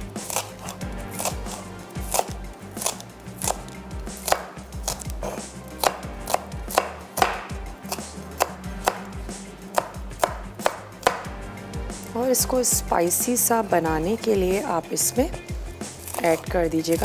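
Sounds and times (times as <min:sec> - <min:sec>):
knife chopping on a board: 0:00.2 - 0:09.1, 0:09.7 - 0:11.3.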